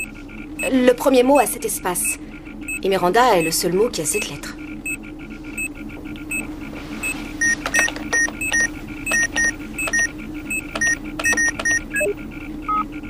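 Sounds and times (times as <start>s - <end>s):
short electronic beeps: 7.4s - 12.8s.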